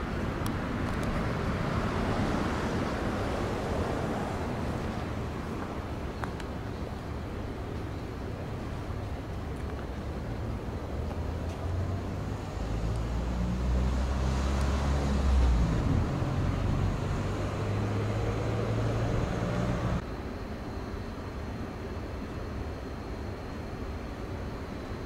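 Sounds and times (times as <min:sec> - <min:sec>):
low engine-like hum: 0:00.0 - 0:25.0
outdoor background noise: 0:00.0 - 0:25.0.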